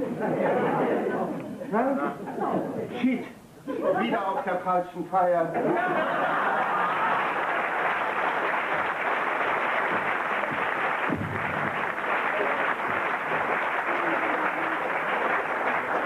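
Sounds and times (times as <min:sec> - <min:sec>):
audience laughing: 0:00.0 - 0:01.4, 0:05.5 - 0:07.9
audience applauding: 0:06.0 - 0:16.0.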